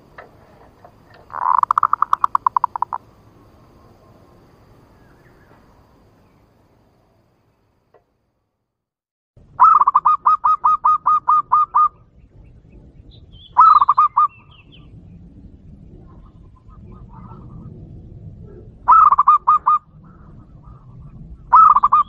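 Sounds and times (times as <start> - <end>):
dove cooing: 0.6 - 3.0, 9.6 - 12.0, 13.6 - 14.4, 18.5 - 20.9, 21.5 - 22.0.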